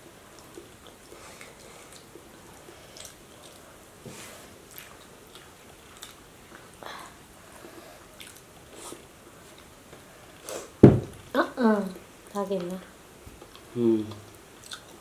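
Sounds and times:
mouth smacks chewing: 4.6 - 6.8, 13.4 - 15.0
loud thump: 10.8 - 11.2.

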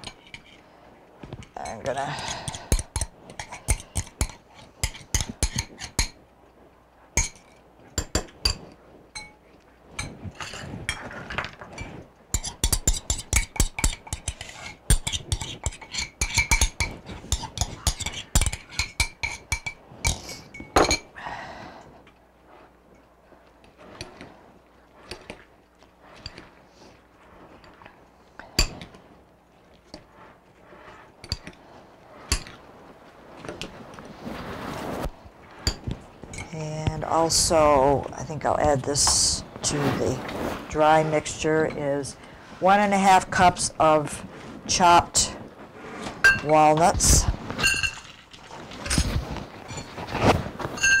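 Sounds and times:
spoon clinking against glass bowl: 50.8 - 51.0.

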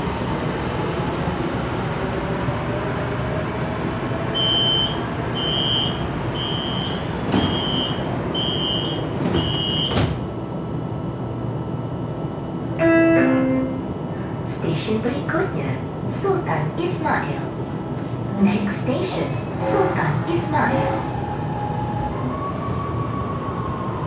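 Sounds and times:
stationary train hum: 0.0 - 24.0
short high warning beeps: 4.4 - 9.9
sliding doors shutting with thump: 7.3 - 8.0, 8.8 - 10.3.

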